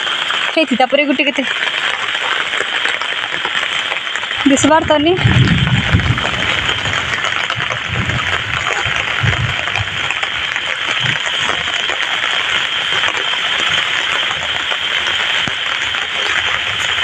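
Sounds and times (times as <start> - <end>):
heavy rain falling: 0.0 - 17.0
low thumps: 4.5 - 10.2.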